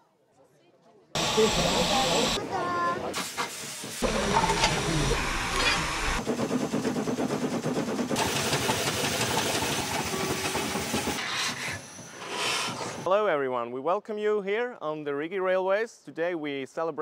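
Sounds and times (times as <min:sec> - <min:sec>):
steam locomotive hissing steam: 0:01.2 - 0:13.1
fast mechanical clatter: 0:04.0 - 0:11.2.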